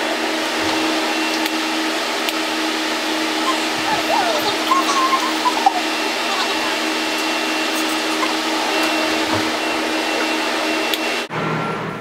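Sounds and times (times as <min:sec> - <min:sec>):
appliance motor rushing noise: 0:00.0 - 0:11.3.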